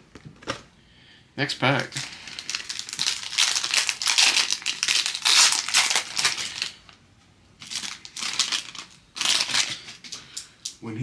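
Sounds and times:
foil wrapper crinkling: 0:01.6 - 0:07.0, 0:07.6 - 0:10.5.

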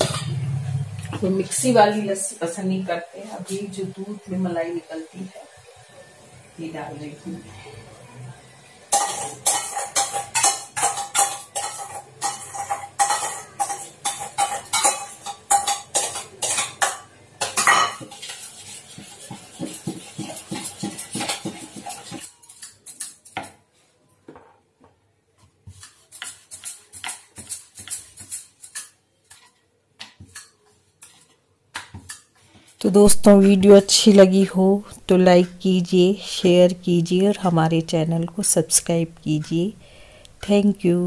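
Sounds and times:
metal utensil clinking on steel bowl: 0:08.9 - 0:23.4.

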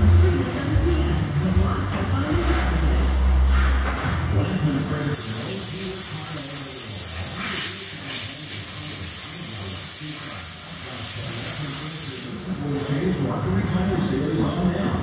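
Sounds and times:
murmur of voices: 0:00.0 - 0:06.7
steady hiss: 0:05.2 - 0:12.5.

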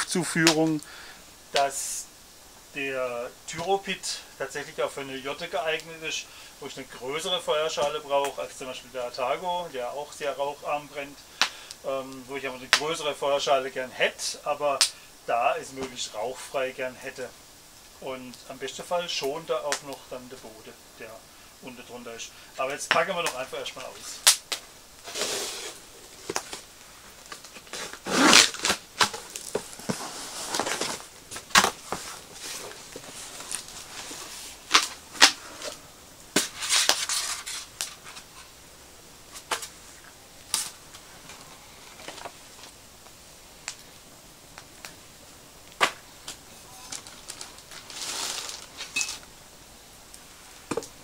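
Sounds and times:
cardboard rustling and scraping: 0:25.0 - 0:35.8, 0:36.4 - 0:38.5, 0:46.5 - 0:49.2.

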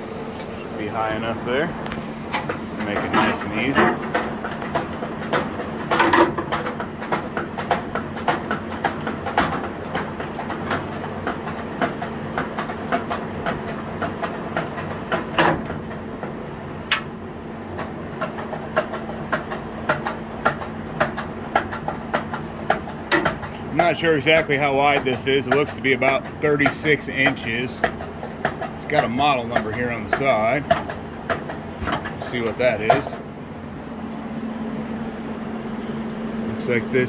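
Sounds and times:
steady low hum: 0:00.0 - 0:37.0
metal clanks and rattles: 0:02.8 - 0:12.0, 0:21.6 - 0:33.3.

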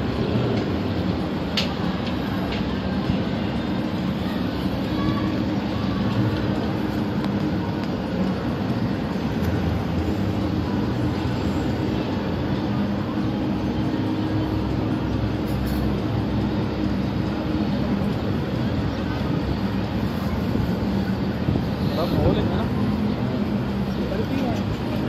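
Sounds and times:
sports car engines rumbling: 0:00.0 - 0:25.0.

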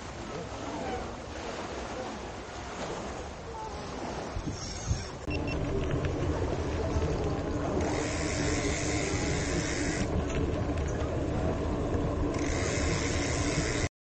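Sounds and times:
wind rushing over microphone: 0:04.2 - 0:13.9
road noise: 0:05.3 - 0:13.9.

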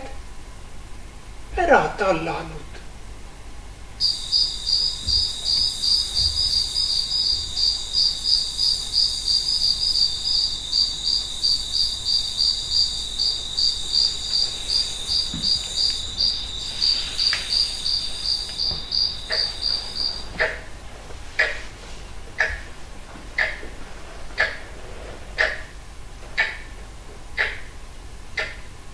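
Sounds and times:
insect chirping: 0:03.9 - 0:25.8
soft knocks: 0:04.8 - 0:07.6, 0:14.2 - 0:20.7.

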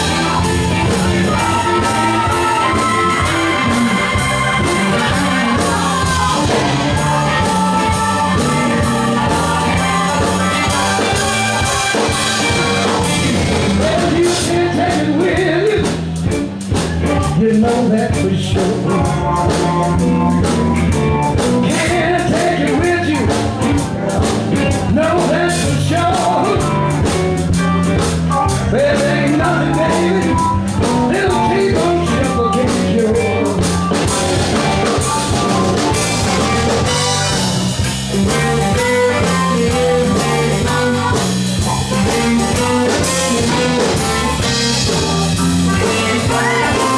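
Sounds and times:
blues band playing: 0:00.0 - 0:46.9
man singing: 0:09.6 - 0:16.1, 0:17.0 - 0:19.6, 0:21.6 - 0:26.9, 0:28.5 - 0:33.7, 0:45.7 - 0:46.9.

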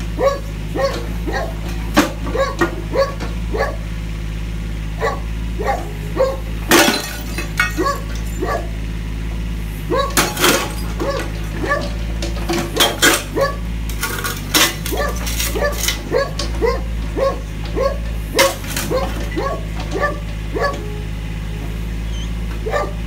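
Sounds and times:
excavator engine running: 0:00.0 - 0:23.0
dog barking: 0:00.2 - 0:01.6, 0:02.3 - 0:03.8, 0:05.0 - 0:06.5, 0:07.8 - 0:08.8, 0:09.9 - 0:10.3, 0:11.0 - 0:12.0, 0:12.7 - 0:13.7, 0:14.9 - 0:21.1, 0:22.6 - 0:23.0
ceramic toilet cracking and shattering: 0:06.7 - 0:08.4.

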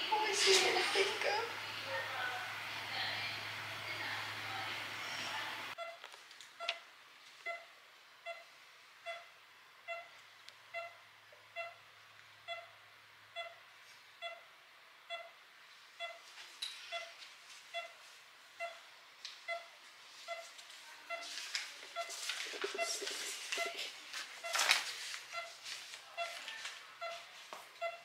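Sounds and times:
hospital equipment beeping: 0:05.0 - 0:06.8, 0:07.4 - 0:15.4, 0:16.0 - 0:18.0, 0:18.6 - 0:28.0
faint rustles and ticks: 0:16.0 - 0:28.0.

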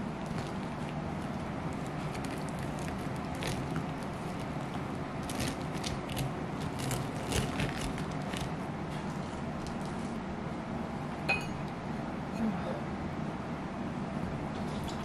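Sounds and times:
knife sawing through crumbly crust: 0:00.3 - 0:09.4.

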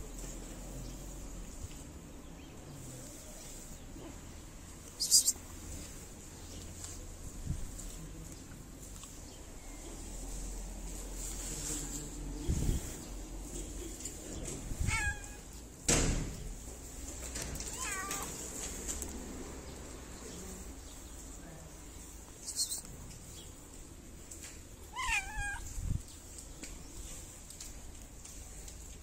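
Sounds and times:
cat meowing: 0:14.8 - 0:15.5, 0:17.7 - 0:18.4, 0:24.9 - 0:25.8.

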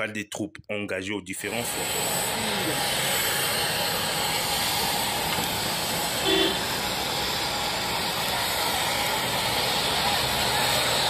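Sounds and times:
steady engine noise with hiss: 0:01.4 - 0:11.0
short pitched tone: 0:06.2 - 0:06.7.

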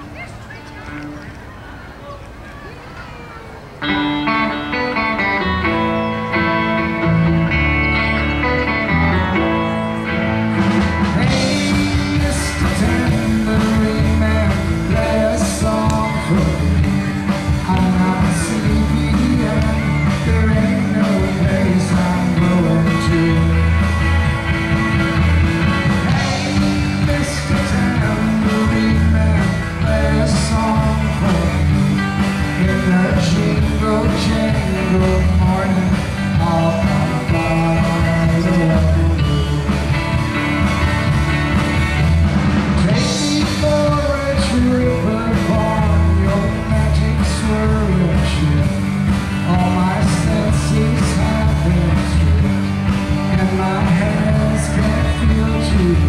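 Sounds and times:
electric guitar: 0:02.2 - 0:56.0
bass guitar: 0:03.7 - 0:56.0
man singing: 0:09.4 - 0:24.2, 0:25.8 - 0:40.4, 0:42.6 - 0:56.0.

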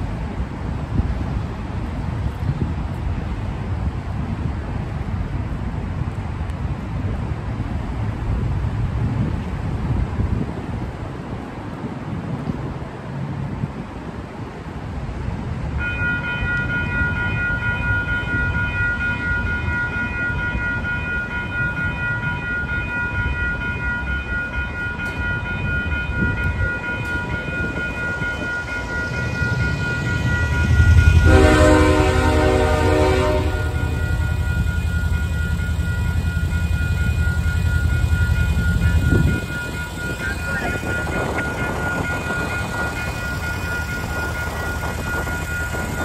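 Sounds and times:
rumble of approaching train: 0:00.0 - 0:46.0
railroad crossing warning bell: 0:15.7 - 0:46.0
train horn blast: 0:30.6 - 0:34.6.

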